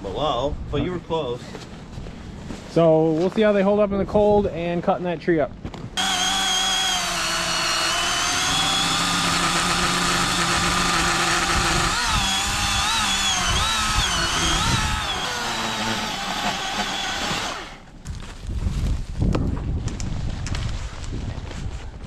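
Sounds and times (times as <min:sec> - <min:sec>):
electric chainsaw cutting wood: 0:06.0 - 0:17.9.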